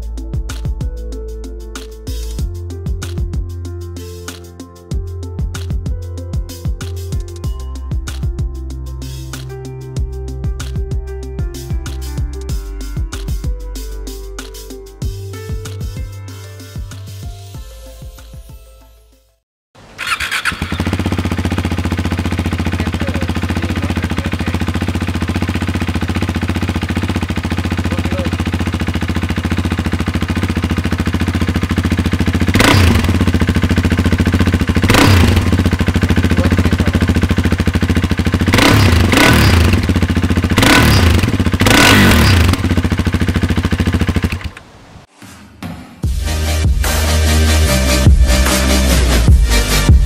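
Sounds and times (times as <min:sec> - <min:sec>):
motorcycle engine idling: 0:19.8 - 0:45.0
engine throttle blips: 0:19.8 - 0:45.1.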